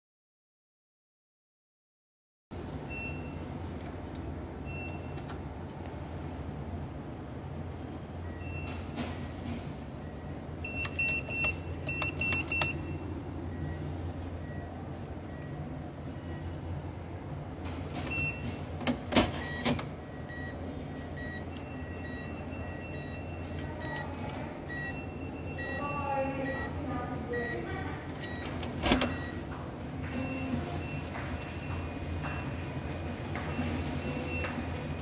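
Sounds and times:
mechanical clicks and clunks: 0:10.6 - 0:12.9, 0:17.6 - 0:20.5, 0:28.1 - 0:35.0
short electronic beeps: 0:24.7 - 0:26.7, 0:29.1 - 0:29.4.

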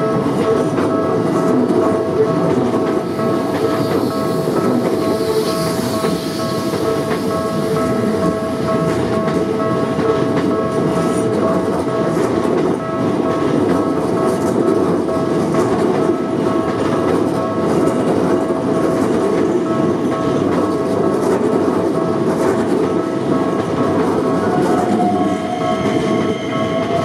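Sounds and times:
train wheels rumbling on rail: 0:00.0 - 0:27.0
steady high tones: 0:01.8 - 0:11.1, 0:23.8 - 0:27.0.

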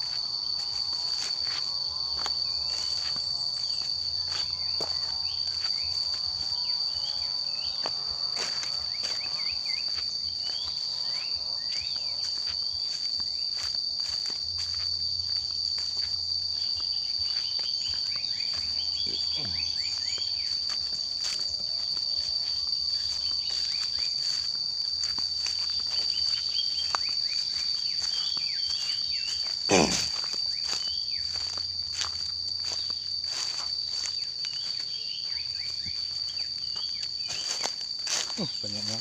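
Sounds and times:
footsteps and rustling on leaves: 0:00.0 - 0:39.0
high-pitched insect drone: 0:00.0 - 0:39.0.

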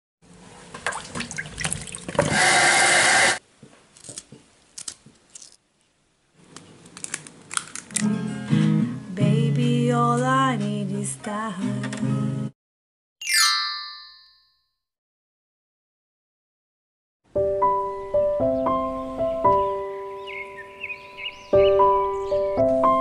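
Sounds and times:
person singing: 0:09.0 - 0:12.0.

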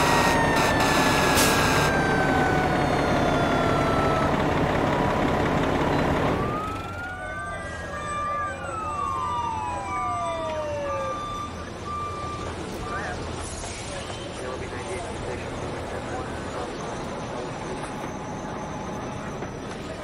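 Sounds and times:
fire engine siren: 0:00.0 - 0:13.2, 0:16.2 - 0:20.0
heavy engine and road din: 0:00.0 - 0:20.0.

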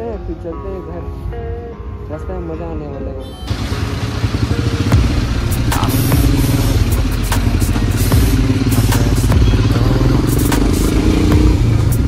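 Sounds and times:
motorcycle engine running: 0:03.5 - 0:12.0.

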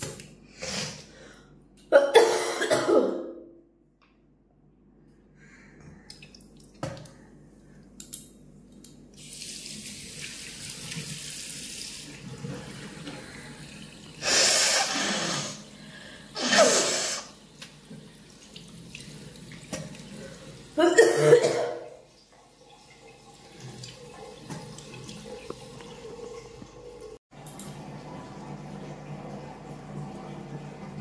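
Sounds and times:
tap water running into sink: 0:09.2 - 0:14.4, 0:17.1 - 0:20.8, 0:22.0 - 0:31.0.

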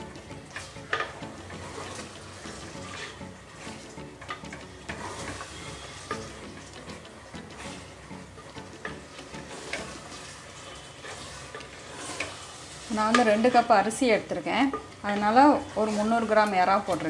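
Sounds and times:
spoon scraping pot: 0:00.4 - 0:06.8, 0:07.4 - 0:08.0, 0:08.8 - 0:13.8.

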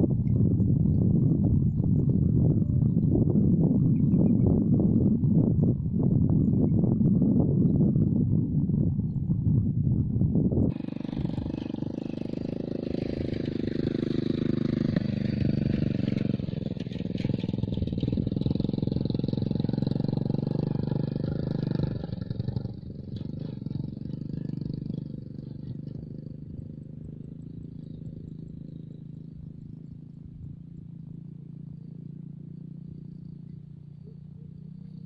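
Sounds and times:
small engine running: 0:10.7 - 0:35.0.

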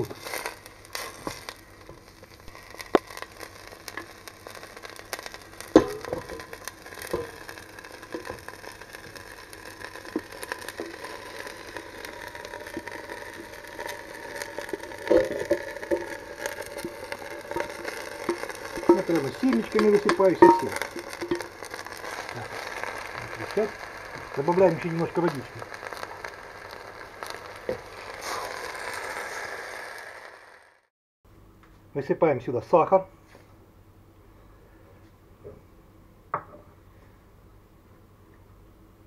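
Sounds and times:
peppers frying in oil: 0:00.0 - 0:30.9
utensil scraping and knocking pot: 0:09.9 - 0:24.4.

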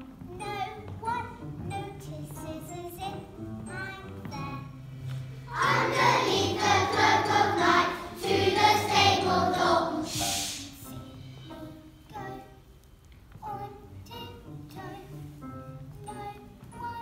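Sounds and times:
backing track: 0:00.0 - 0:12.4
children singing: 0:05.5 - 0:10.9
high hiss: 0:09.9 - 0:12.0.

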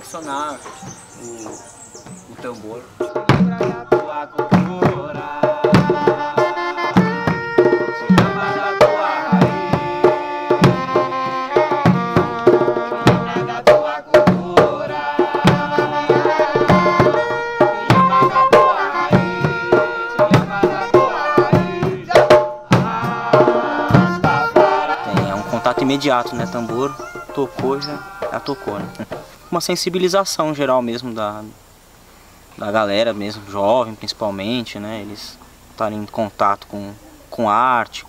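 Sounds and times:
hand drums beating: 0:00.6 - 0:29.4.

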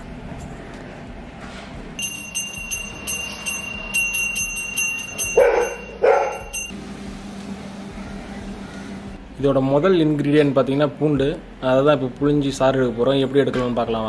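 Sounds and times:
brass hand bell ringing: 0:02.0 - 0:06.8.

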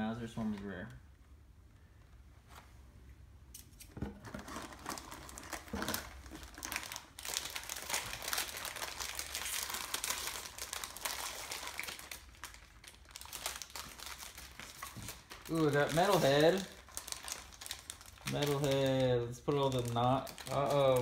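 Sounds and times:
foil packs crinkling: 0:04.2 - 0:21.0.

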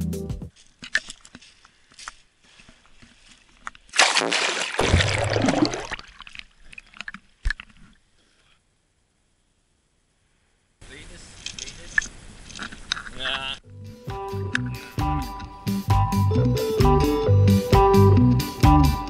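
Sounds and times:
water sloshing and bubbling: 0:03.8 - 0:08.1.

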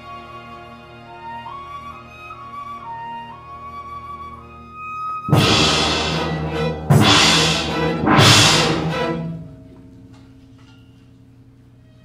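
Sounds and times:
orchestra accented chords: 0:05.3 - 0:10.4
held low string chord: 0:05.3 - 0:10.9.

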